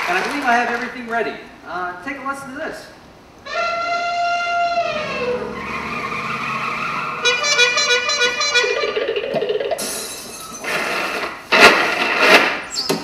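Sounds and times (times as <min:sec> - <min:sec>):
tyres screeching: 0:03.4 - 0:08.4
car horn blast: 0:03.5 - 0:08.9.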